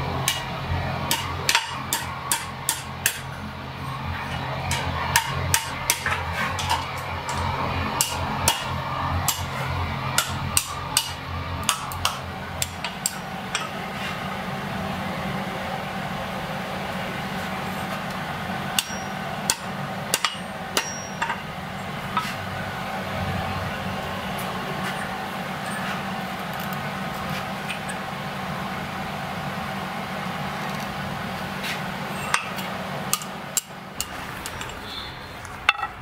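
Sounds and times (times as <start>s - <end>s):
hammer striking iron on anvil: 0.2s - 3.3s, 4.7s - 13.8s, 18.7s - 21.5s, 32.2s - 35.0s, 35.7s - 36.0s.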